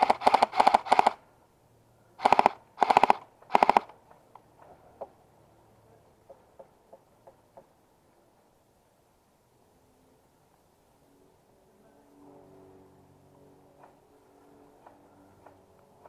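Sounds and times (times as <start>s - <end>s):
airsoft rifle automatic bursts: 0.0s - 1.2s, 2.2s - 4.0s.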